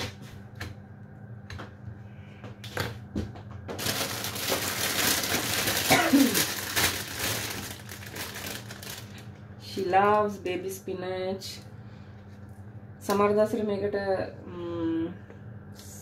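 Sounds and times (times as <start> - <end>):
plastic bag crinkling: 3.7 - 9.4.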